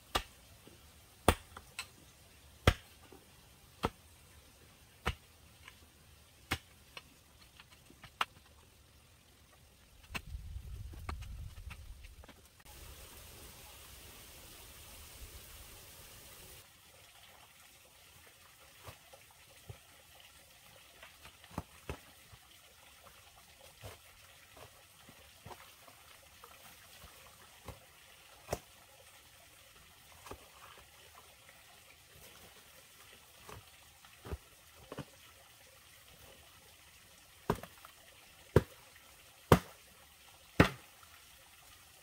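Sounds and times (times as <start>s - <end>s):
faint trickle of water: 12.6s - 42.0s
hoe striking wet earth: 37.5s - 37.8s, 39.5s - 39.8s.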